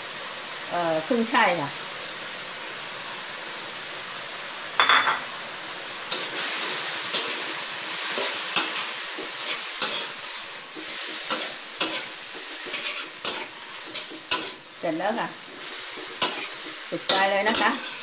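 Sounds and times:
vegetables sizzling in a wok: 0:00.0 - 0:18.0.

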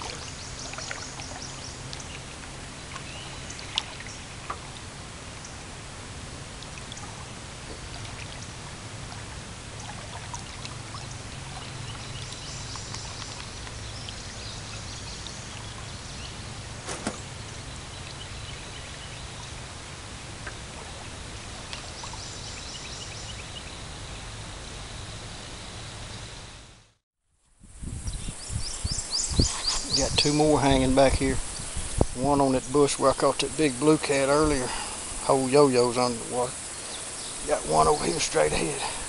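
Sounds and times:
water noise: 0:00.0 - 0:26.5, 0:28.0 - 0:39.0
low steady rumble: 0:00.0 - 0:27.0
wind: 0:00.0 - 0:39.0.

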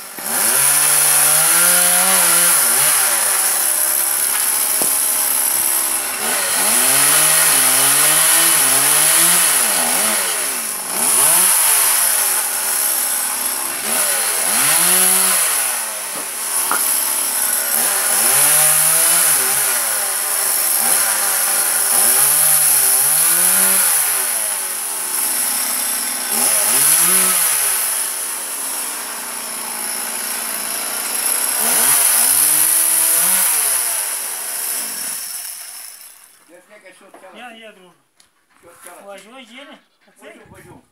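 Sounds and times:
chainsaw revving: 0:00.0 - 0:36.4.

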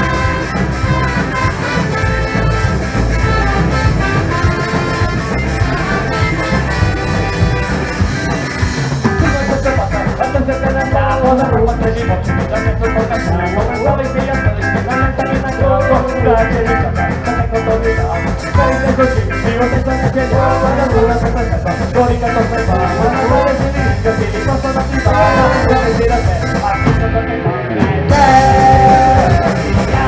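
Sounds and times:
saxophone: 0:00.0 - 0:10.0
fast cymbal beat: 0:00.0 - 0:27.0, 0:28.1 - 0:30.0
electric guitars: 0:00.0 - 0:30.0
ska-punk band playing: 0:00.0 - 0:30.0.

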